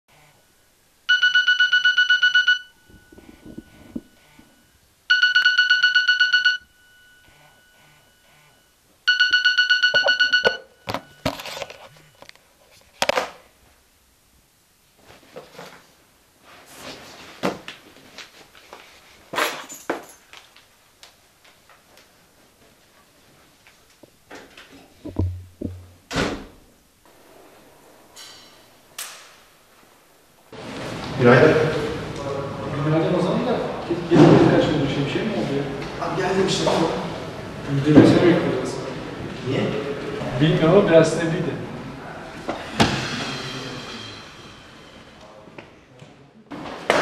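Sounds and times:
mobile phone alarm beeping: 1.1s - 12.3s
shuffling noises: 11.2s - 13.8s, 15.0s - 20.6s
knocks: 25.0s - 26.3s.

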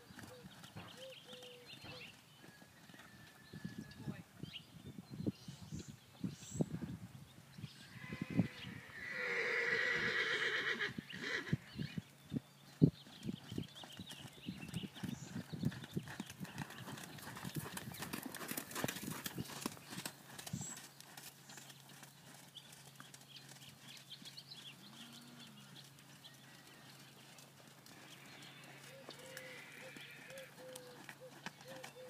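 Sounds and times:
horse hooves on sand: 0.0s - 3.5s, 12.5s - 32.0s.

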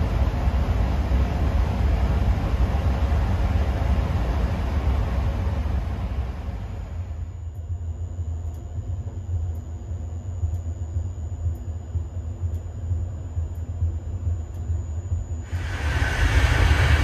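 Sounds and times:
thin high whine: 5.3s - 17.0s
faint ticking: 7.4s - 15.7s
train wheels rumbling: 15.4s - 17.0s
rushing hiss: 15.5s - 17.0s.

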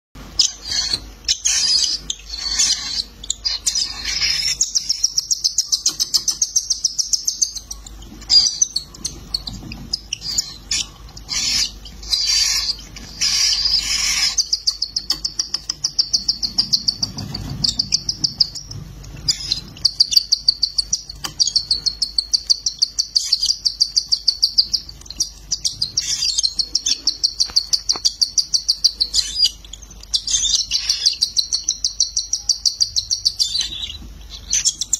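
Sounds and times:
chicks chirping high-pitched: 0.2s - 34.9s.

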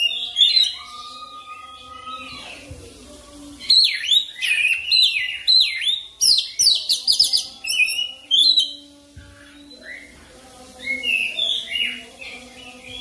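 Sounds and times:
bird singing whistled phrases: 3.6s - 10.2s.

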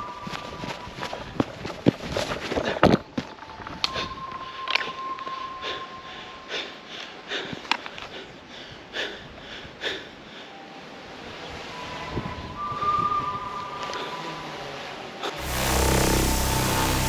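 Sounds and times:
man breathing hard: 3.9s - 10.7s
thin high tone: 11.7s - 17.0s.

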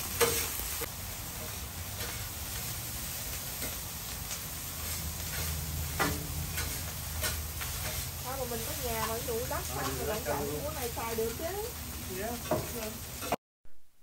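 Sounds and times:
rice sizzling on a griddle: 0.0s - 13.4s
metal spatulas scraping: 4.8s - 8.1s.

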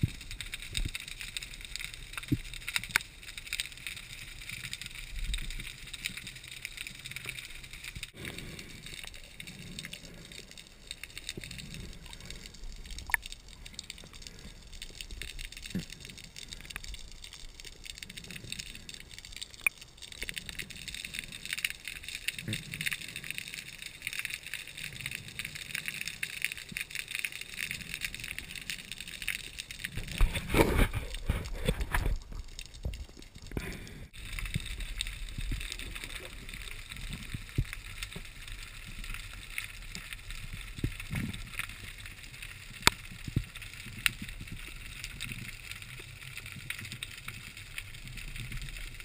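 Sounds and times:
fine underwater crackle: 0.0s - 49.0s.

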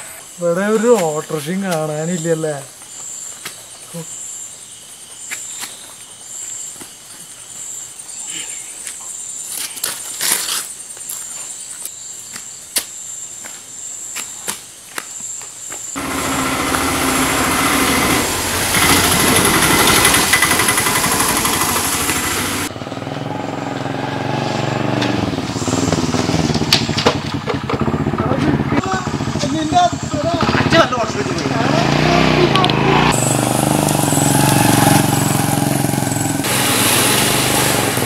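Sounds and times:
crickets chirping: 0.0s - 22.4s, 23.5s - 38.0s
small vehicle engine: 16.0s - 38.0s.

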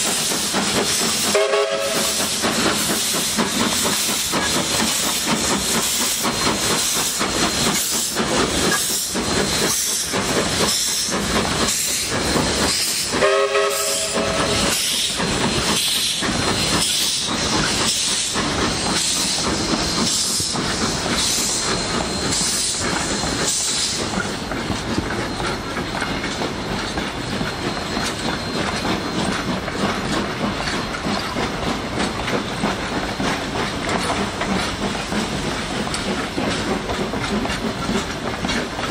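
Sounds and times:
carriages clickety-clack on rails: 0.0s - 38.9s
steam locomotive exhaust chuffs: 0.0s - 38.9s
steam whistle blast: 1.3s - 2.4s, 13.2s - 14.8s.

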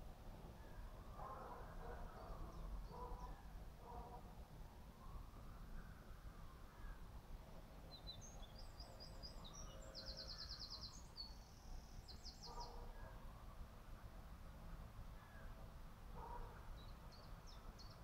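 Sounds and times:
faint low outdoor rumble: 0.0s - 18.0s
songbird singing with trills: 1.8s - 3.6s, 7.8s - 13.3s, 16.6s - 18.0s.

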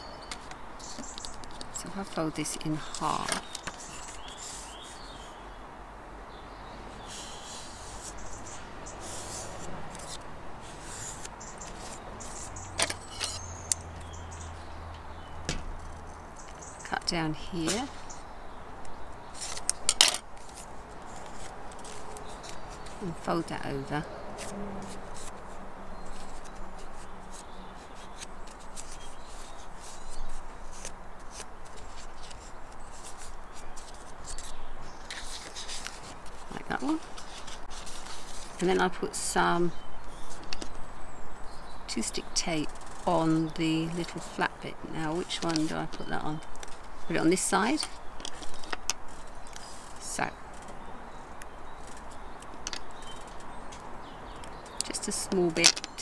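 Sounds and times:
paper card rustling: 0.2s - 5.0s, 7.1s - 14.1s, 19.2s - 23.4s, 24.4s - 38.9s, 45.2s - 50.7s.

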